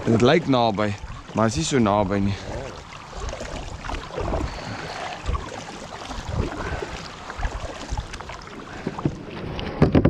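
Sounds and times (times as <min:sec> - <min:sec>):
paddles splashing in water: 0:00.0 - 0:10.0
low thuds on kayak hull: 0:08.8 - 0:10.0.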